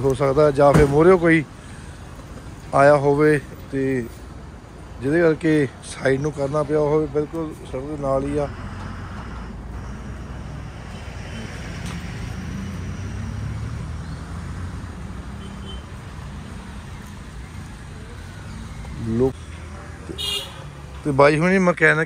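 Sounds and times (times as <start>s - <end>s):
vehicle engine passing: 7.6s - 21.0s.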